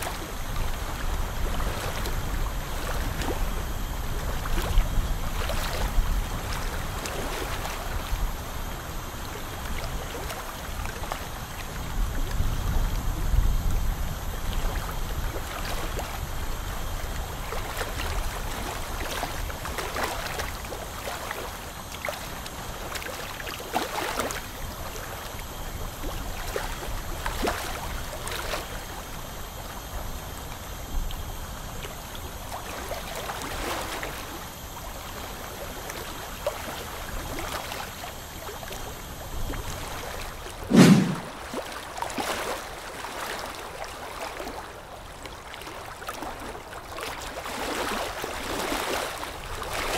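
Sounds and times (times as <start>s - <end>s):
ultrasonic scaler: 40.7s - 41.4s.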